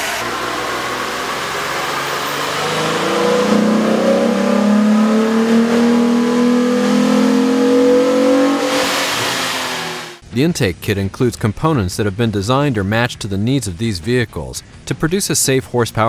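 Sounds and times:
engine revving under load: 0.0 - 10.2.

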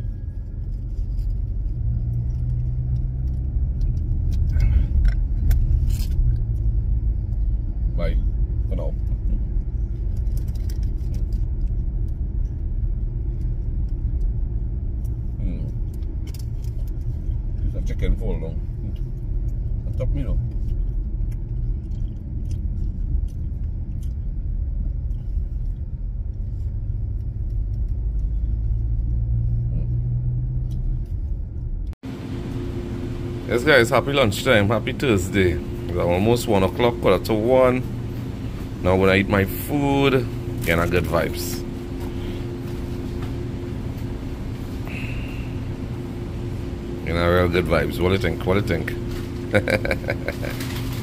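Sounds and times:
car rumble from inside cabin: 0.0 - 51.0
paper wrapper crinkling: 9.8 - 12.6, 49.0 - 51.0.

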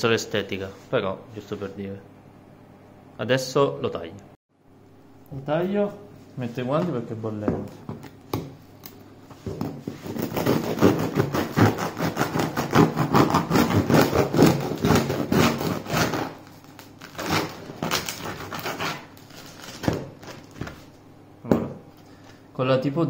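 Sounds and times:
knife sawing through bread: 9.9 - 16.4, 17.0 - 19.8.

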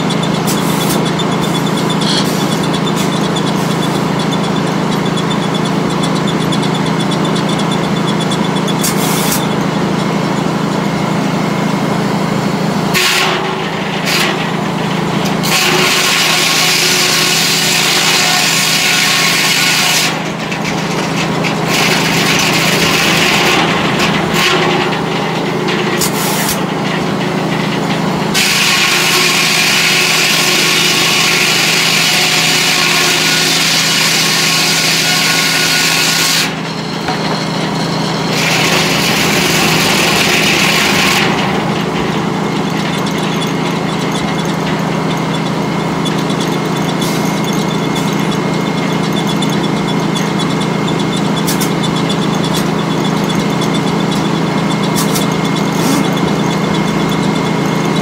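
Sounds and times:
circular saw cutting log: 0.0 - 58.0
saw drive hum: 0.0 - 58.0.

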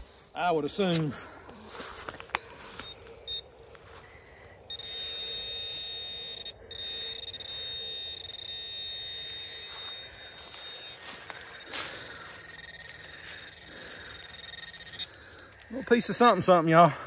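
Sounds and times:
pinpointer high-pitched tone: 2.7 - 16.1
pinpointer short beep: 2.8 - 3.5, 4.1 - 15.2.

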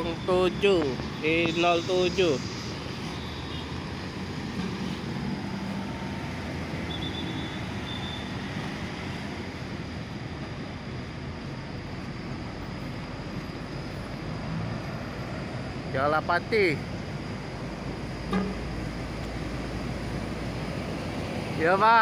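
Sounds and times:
traffic noise: 0.0 - 22.0
low engine hum: 16.7 - 21.6.

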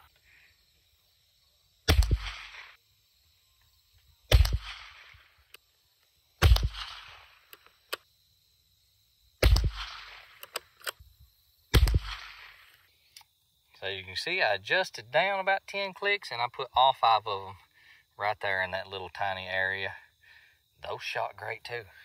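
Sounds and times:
rifle shots with echo: 1.9 - 2.8, 4.3 - 5.3, 6.4 - 7.5, 9.4 - 10.4, 11.7 - 12.7.

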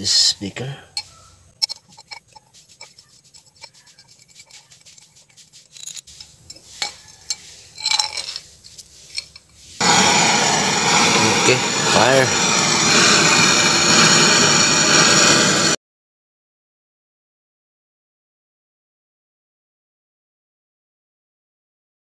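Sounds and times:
glass beaker clinking: 1.0 - 5.1, 5.8 - 8.5
gas torch flame hissing: 3.6 - 15.8.

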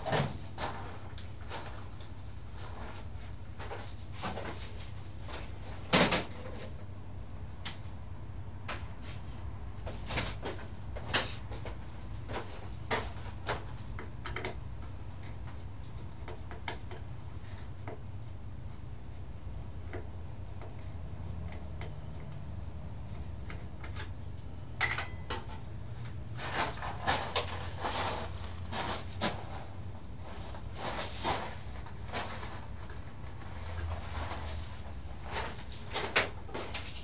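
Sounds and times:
steady low hum: 0.0 - 37.0
hand tools and metal parts clinking: 0.6 - 2.3, 23.8 - 29.1.

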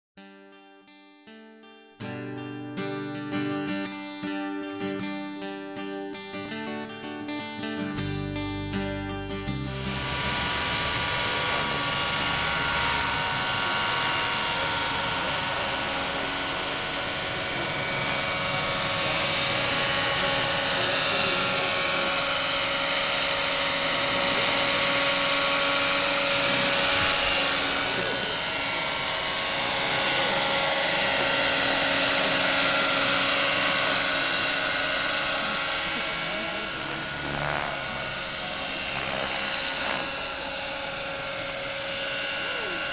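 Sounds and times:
helicopter rotor noise: 9.4 - 42.9
model helicopter whine: 9.4 - 42.9.

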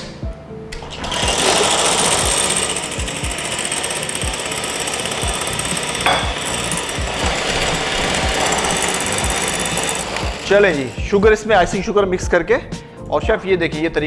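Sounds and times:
electric hand mixer whisking: 0.9 - 12.0.

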